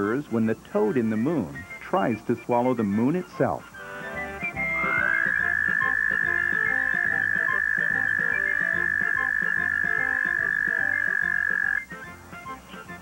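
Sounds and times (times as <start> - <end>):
toad trilling: 4.4 - 11.9.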